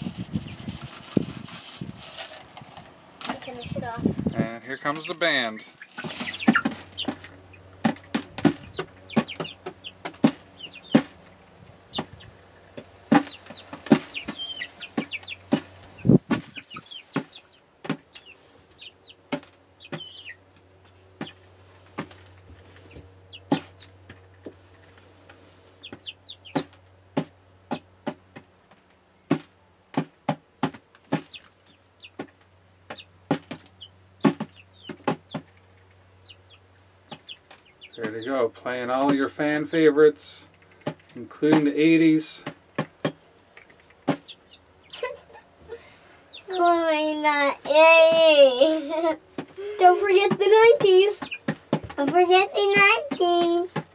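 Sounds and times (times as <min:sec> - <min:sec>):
beaks tapping on plastic: 0:40.4 - 0:41.7.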